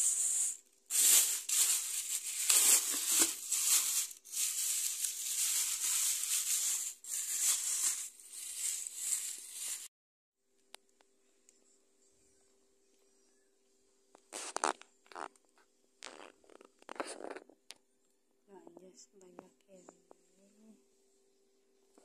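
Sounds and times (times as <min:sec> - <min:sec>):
plastic bags rustling: 0:00.1 - 0:09.9.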